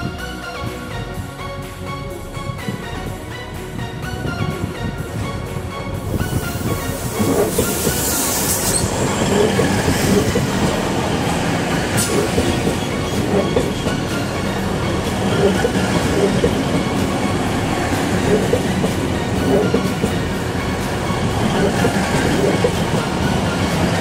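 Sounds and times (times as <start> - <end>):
train wheels rumbling on rails: 0.0 - 24.0
train wheels clacking over joints: 4.2 - 24.0.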